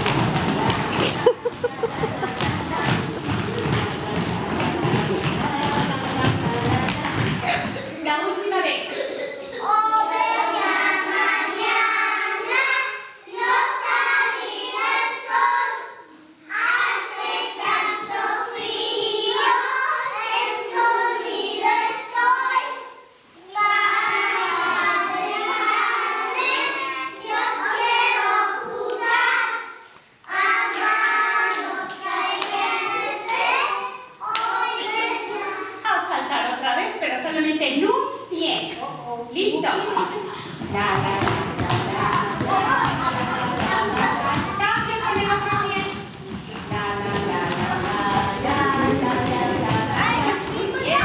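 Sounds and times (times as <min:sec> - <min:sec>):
children singing unaccompanied: 0:00.0 - 0:07.8, 0:09.2 - 0:35.8, 0:39.8 - 0:51.0.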